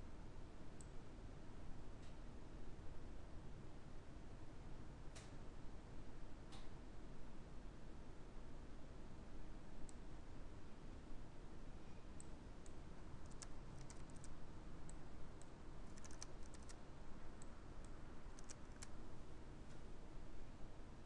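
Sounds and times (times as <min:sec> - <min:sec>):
faint keyboard keystrokes: 0:12.2 - 0:16.8, 0:17.4 - 0:19.0.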